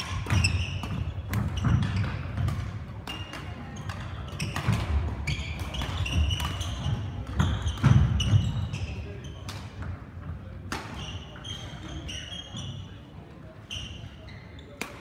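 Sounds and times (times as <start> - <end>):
trainers squeaking on floor: 0.0 - 2.5, 3.1 - 9.5, 10.9 - 14.8
racket hitting shuttlecock: 0.0 - 8.6, 10.7 - 11.4, 14.8 - 15.0.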